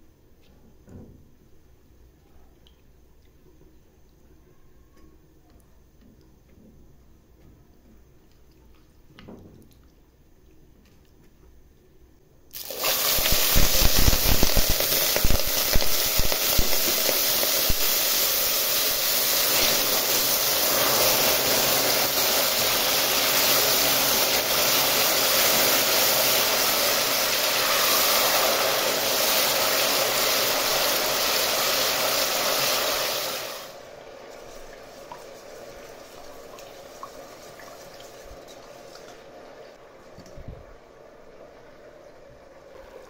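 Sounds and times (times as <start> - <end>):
hot sugar and oil sizzling: 12.5 - 39.8.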